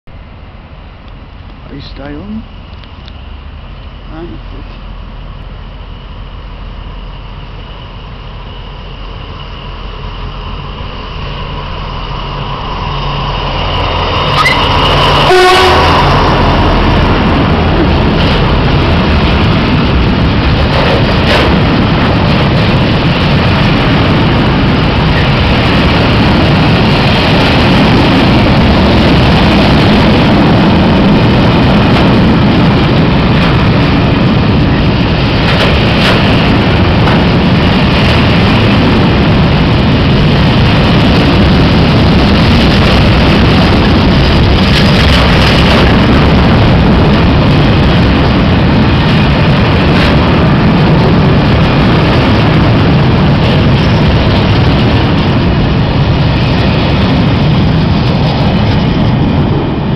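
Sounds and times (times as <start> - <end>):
freight train wheels rushing past: 0.1 - 59.9
train horn: 14.3 - 16.4.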